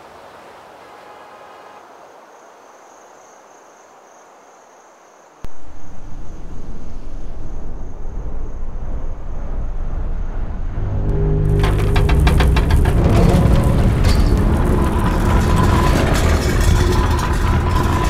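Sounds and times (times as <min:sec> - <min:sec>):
crickets chirring: 0:01.8 - 0:09.8
deep fluttering drone: 0:08.2 - 0:18.0.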